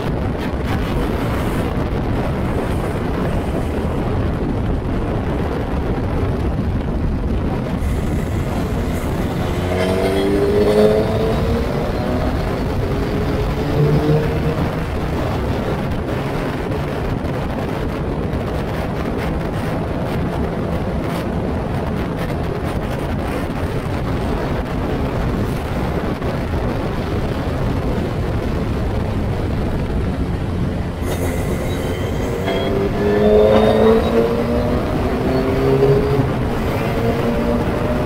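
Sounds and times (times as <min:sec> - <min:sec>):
wind buffeting microphone: 0:00.0 - 0:38.0
race car engine accelerating: 0:07.8 - 0:15.2, 0:31.0 - 0:38.0.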